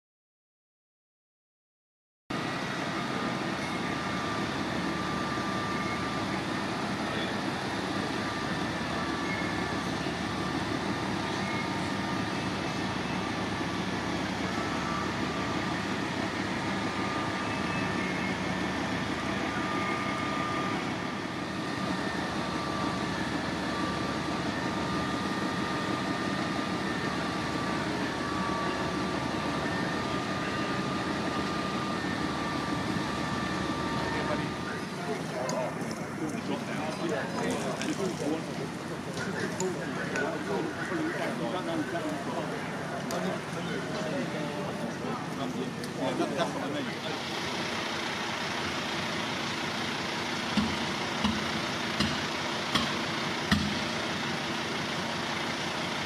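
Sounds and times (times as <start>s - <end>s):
diesel engines and pumps running: 2.3s - 56.0s.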